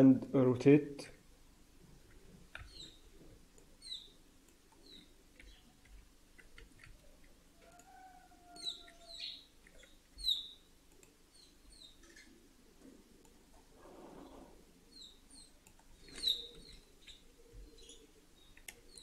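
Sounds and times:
small birds chirping: 0:02.6 - 0:06.0, 0:06.6 - 0:12.5, 0:14.0 - 0:19.0.

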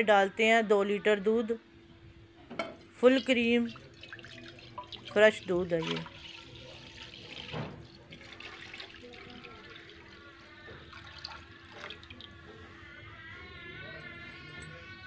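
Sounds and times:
milk pouring and splashing: 0:03.2 - 0:12.4.

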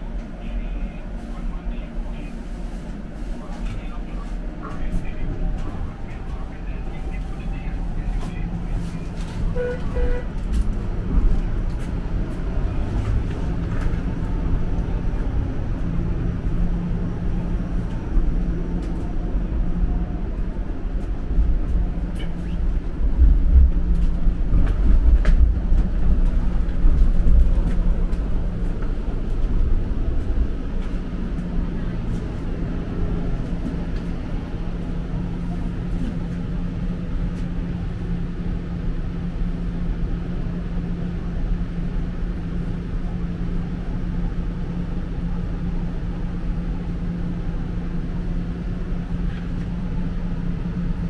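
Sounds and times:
constant hum: 0:00.0 - 0:51.0
wheels rumbling on rails: 0:00.0 - 0:51.0.

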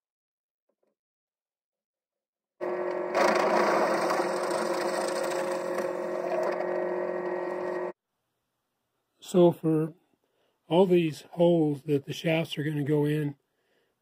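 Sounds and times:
drill bit cutting wood: 0:02.6 - 0:08.0
drill press motor hum: 0:02.6 - 0:08.0.

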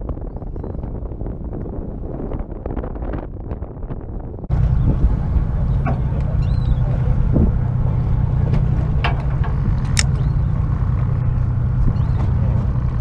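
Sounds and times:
boat engine droning: 0:03.7 - 0:13.0.

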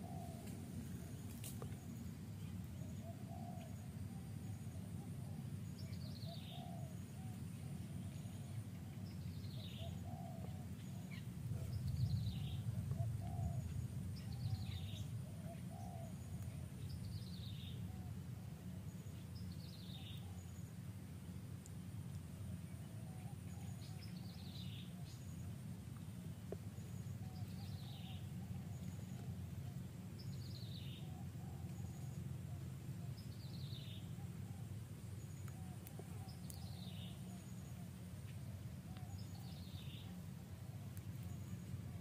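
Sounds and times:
low outdoor rumble: 0:00.0 - 0:42.0
soft low bird calls: 0:00.0 - 0:42.0.

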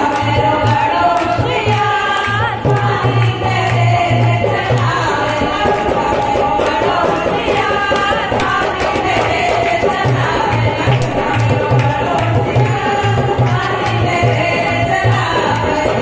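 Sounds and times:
women singing folk song: 0:00.0 - 0:16.0.

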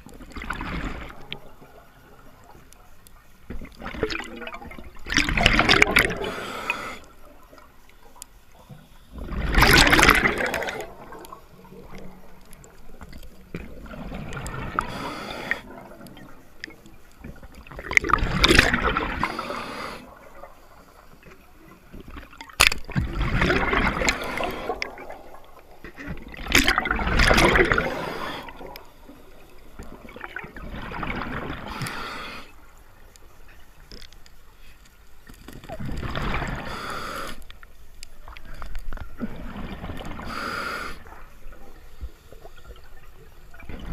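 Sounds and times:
water sound: 0:00.0 - 0:43.9
exhaled bubbles: 0:03.5 - 0:07.7, 0:09.1 - 0:32.2, 0:39.1 - 0:43.9
diver breathing through regulator: 0:06.0 - 0:07.1, 0:14.6 - 0:15.8, 0:19.1 - 0:20.2, 0:23.8 - 0:25.1, 0:27.6 - 0:28.8, 0:31.6 - 0:32.6, 0:36.4 - 0:37.5, 0:40.2 - 0:41.2.

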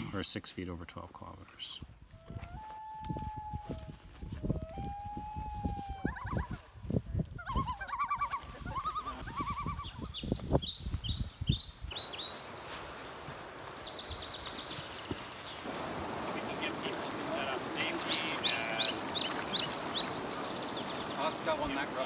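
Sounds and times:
bird calls and warbling: 0:07.4 - 0:22.0.

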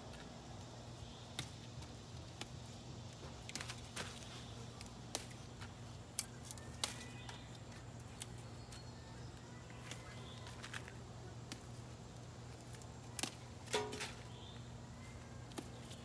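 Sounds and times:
leaves snapping off stems: 0:03.4 - 0:08.8, 0:09.8 - 0:11.8, 0:12.5 - 0:14.3, 0:15.4 - 0:16.0.

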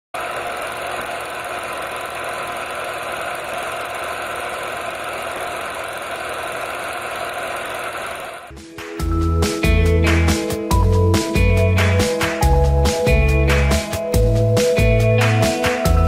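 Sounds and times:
film projector whirring: 0:00.2 - 0:08.5.

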